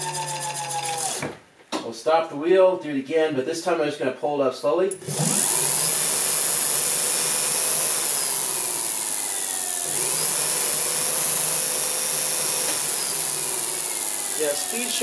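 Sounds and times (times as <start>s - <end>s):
electric motor whirring and whining: 0.0s - 1.3s, 5.0s - 15.0s.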